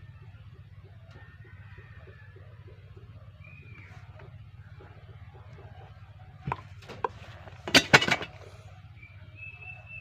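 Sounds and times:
plastic pipes knocking together: 0:06.4 - 0:08.5.

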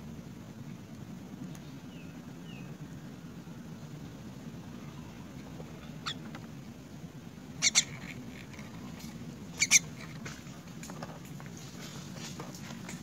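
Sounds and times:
steady low hum: 0:00.0 - 0:13.0
bird chirping high-pitched: 0:05.8 - 0:06.2, 0:07.6 - 0:08.1, 0:09.5 - 0:10.0.

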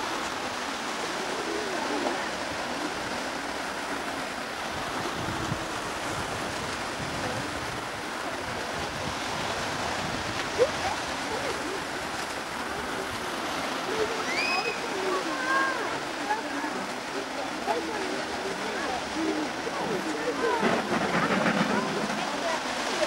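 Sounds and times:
steam locomotive hissing: 0:19.0 - 0:23.0.

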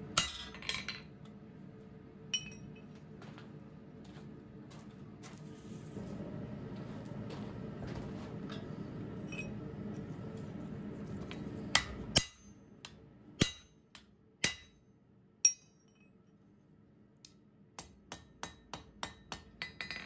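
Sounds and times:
hammer striking steel on anvil: 0:00.2 - 0:00.9, 0:11.7 - 0:14.8, 0:15.4 - 0:16.1, 0:17.8 - 0:20.0.

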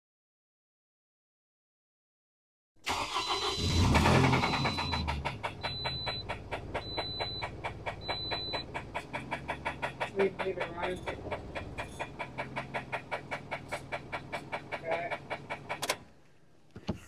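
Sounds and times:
car engine starting: 0:02.8 - 0:16.1
engine idling with steady knock: 0:03.8 - 0:16.1.

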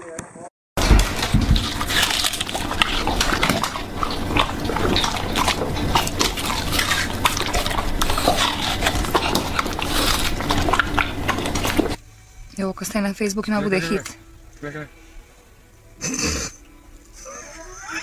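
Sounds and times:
dog chewing wetly: 0:00.8 - 0:12.0.

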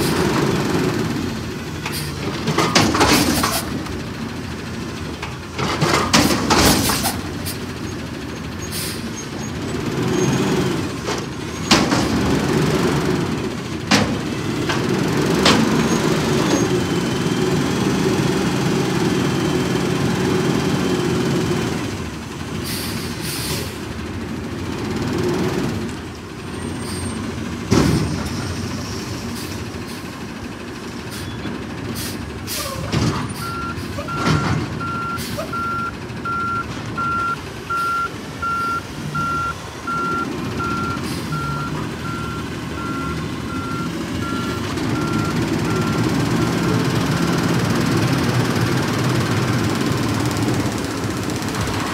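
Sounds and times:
garbage truck engine running: 0:00.0 - 0:51.9
backup alarm beeping: 0:33.4 - 0:46.8.

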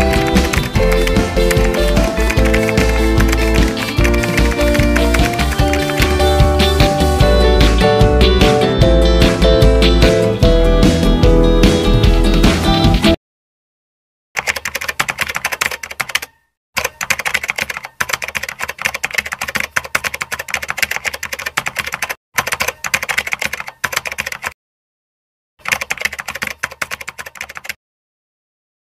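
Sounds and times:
rapid keyboard keystrokes: 0:00.0 - 0:07.2, 0:14.4 - 0:24.6, 0:25.6 - 0:27.8.

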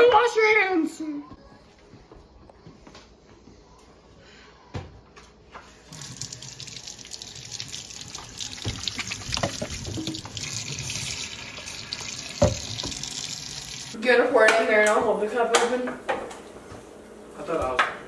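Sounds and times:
faucet running into steel sink: 0:05.8 - 0:14.0.

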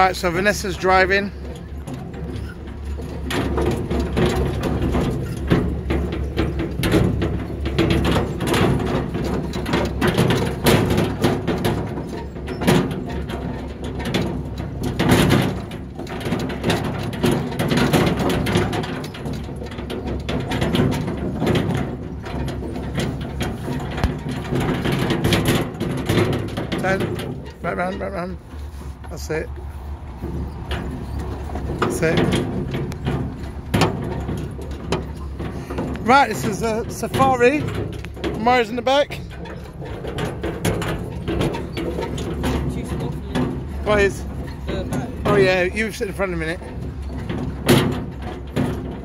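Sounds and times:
construction vehicle engine running: 0:00.0 - 0:49.0
machine rattles and knocks: 0:00.0 - 0:49.0.

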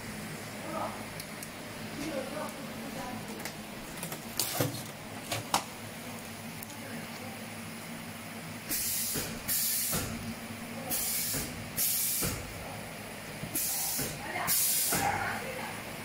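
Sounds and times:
compressed air hisses: 0:08.7 - 0:10.2, 0:10.9 - 0:12.4, 0:13.5 - 0:15.0.

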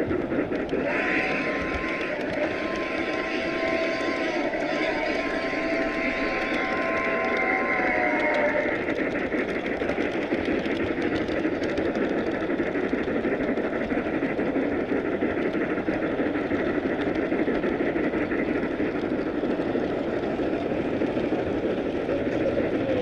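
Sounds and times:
train wheels rumbling on rail: 0:00.0 - 0:23.0
faint clicks: 0:00.4 - 0:16.0.

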